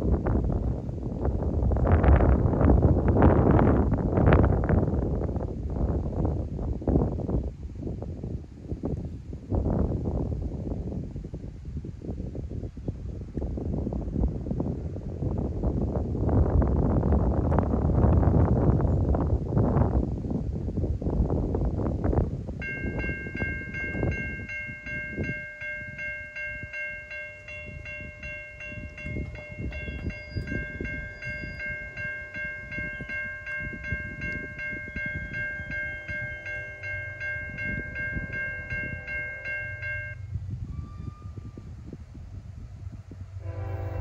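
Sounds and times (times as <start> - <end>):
wind buffeting microphone: 0.0 - 44.0
electronic crossing bell ringing: 22.6 - 40.3.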